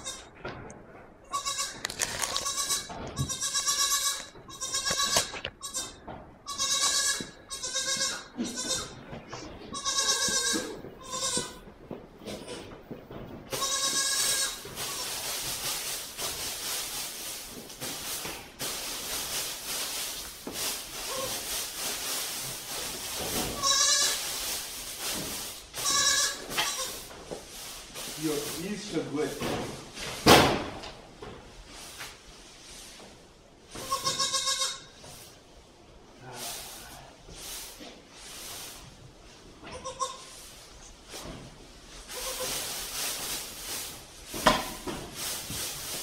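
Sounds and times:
goat kid bleating: 0.0 - 0.3, 1.2 - 9.1, 9.7 - 11.6, 13.5 - 15.1, 23.6 - 24.2, 25.8 - 27.1, 33.7 - 35.0, 39.6 - 40.4, 42.1 - 42.5
straw rustling: 13.5 - 29.3, 40.1 - 46.0.

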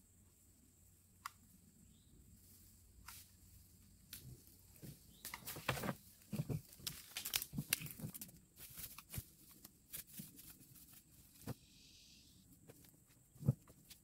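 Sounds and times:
sticks crackling underfoot: 4.1 - 11.5.

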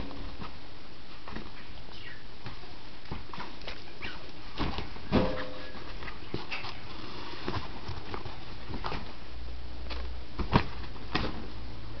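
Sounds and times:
soft taps and rustles: 0.1 - 9.2.

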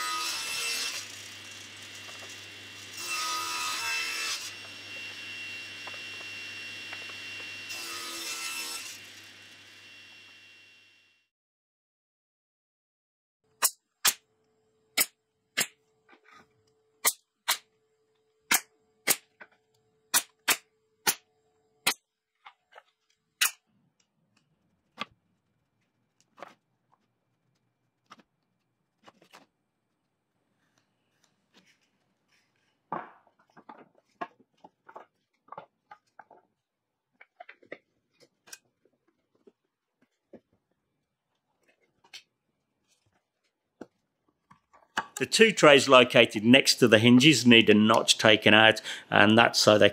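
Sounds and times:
taps and rustles of wooden pieces: 32.9 - 40.8.

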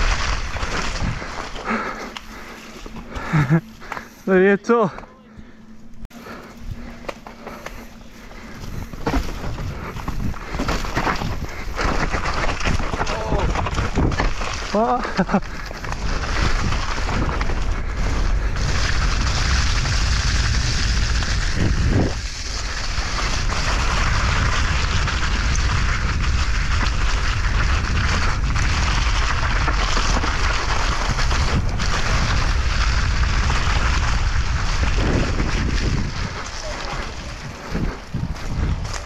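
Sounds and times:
wind rushing over microphone: 15.8 - 39.0.

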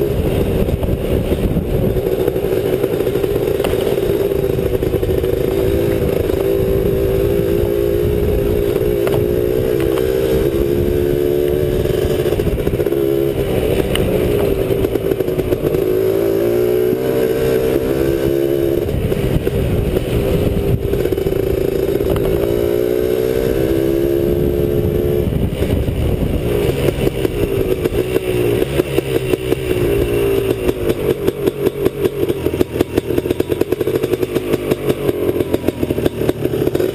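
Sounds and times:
two-stroke motorcycle engine: 0.0 - 36.9.

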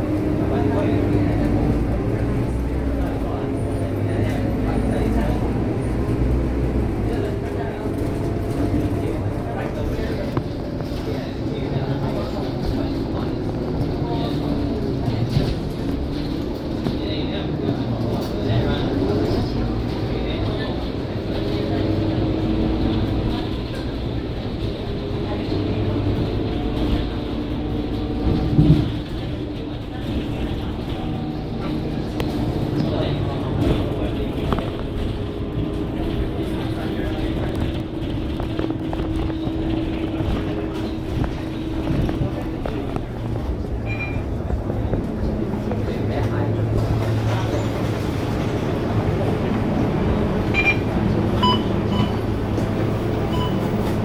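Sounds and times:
bus engine rumbling: 0.0 - 54.0
short electronic beeps: 43.8 - 44.3, 50.5 - 52.3, 53.2 - 53.7.

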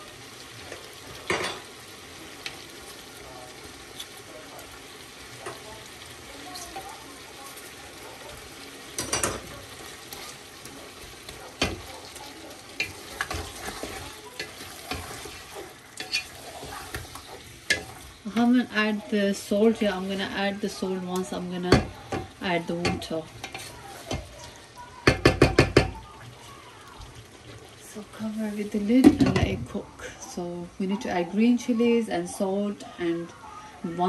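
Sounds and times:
food sizzling in a pot: 0.0 - 34.0
spoon knocking against pot: 25.0 - 26.0.

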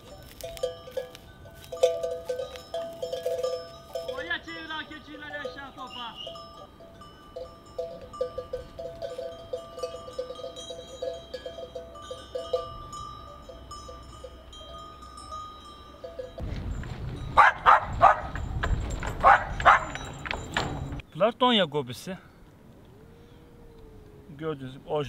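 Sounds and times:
livestock bells clanking: 0.0 - 21.0
dog barking: 17.4 - 18.4, 19.2 - 20.0.

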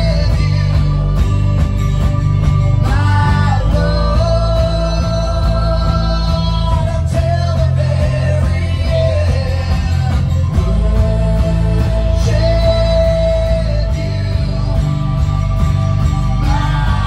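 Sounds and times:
drum kit: 0.0 - 17.0
keyboard: 0.0 - 17.0
strummed acoustic guitar: 0.0 - 17.0
person singing lead: 16.2 - 17.0.

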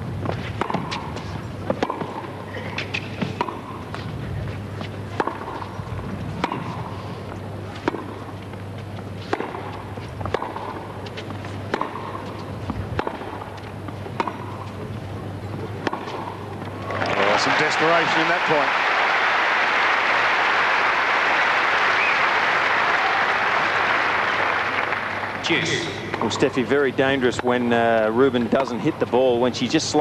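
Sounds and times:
steady low hum: 0.0 - 17.2, 19.6 - 30.0
tennis racquets hitting ball: 0.3 - 4.1, 5.1 - 7.0, 7.7 - 18.7, 26.1 - 26.7.

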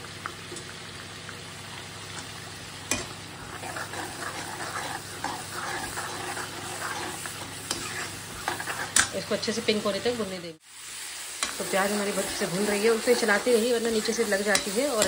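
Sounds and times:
onions sizzling in hot oil: 0.0 - 15.0
metal ladle stirring and scraping: 2.9 - 9.2, 11.4 - 15.0.

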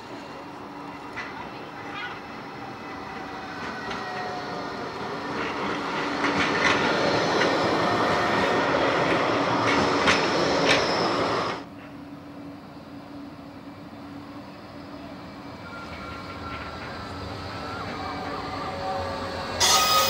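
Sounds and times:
street background: 0.0 - 19.8
tram rumbling past: 0.0 - 20.0
tram wheels clicking: 3.1 - 12.0.

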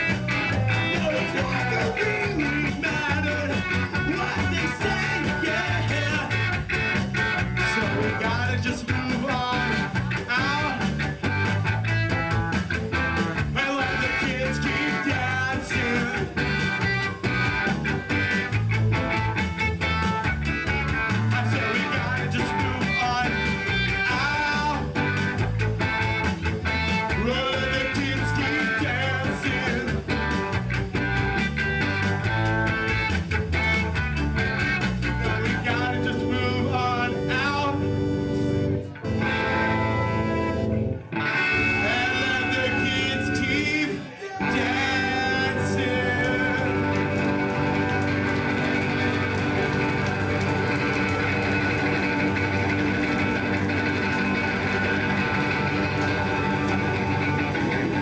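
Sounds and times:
man singing into a microphone: 0.0 - 6.4, 7.6 - 10.9, 13.6 - 16.5, 21.2 - 24.9, 27.1 - 30.0, 35.4 - 37.8, 41.6 - 47.2
drums keeping a steady beat: 0.0 - 40.1, 44.5 - 58.0
electric guitar: 0.0 - 58.0.

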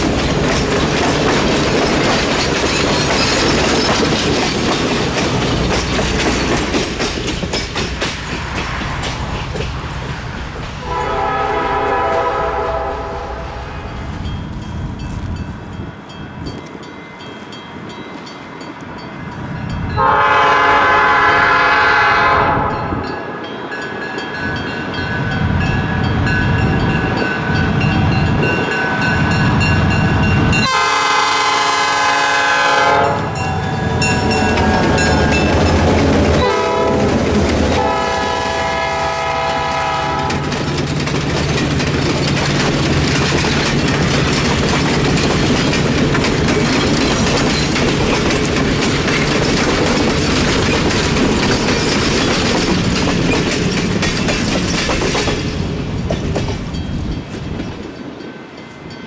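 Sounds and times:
train wheels clacking over rail joints: 0.0 - 12.7, 30.5 - 58.1
locomotive air horn: 10.8 - 13.8, 20.0 - 23.0, 30.6 - 33.4, 36.4 - 40.5.

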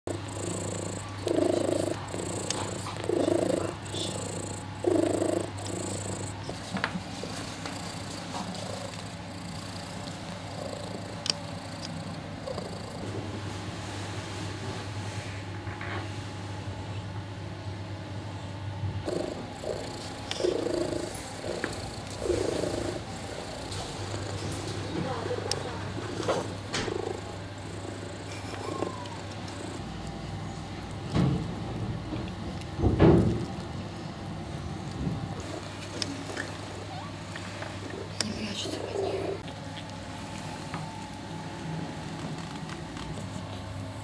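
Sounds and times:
cat purring: 0.1 - 13.0, 19.0 - 30.9, 35.4 - 39.5.

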